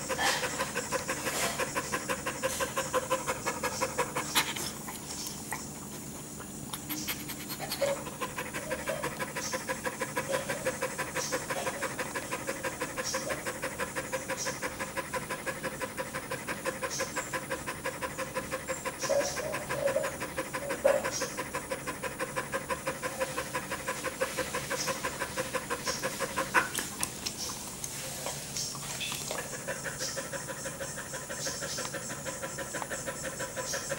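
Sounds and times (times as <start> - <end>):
dog panting fast: 0.0 - 33.9.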